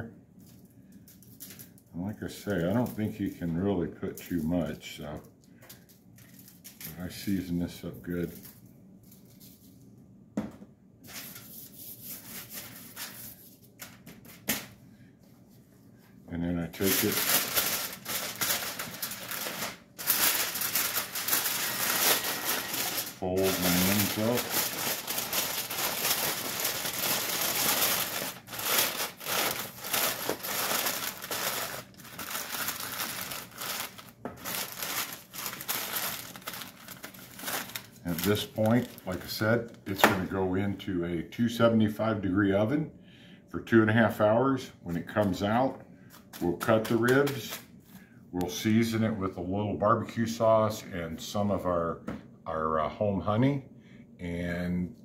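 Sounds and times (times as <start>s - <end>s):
foil crinkling: 16.6s - 39.7s.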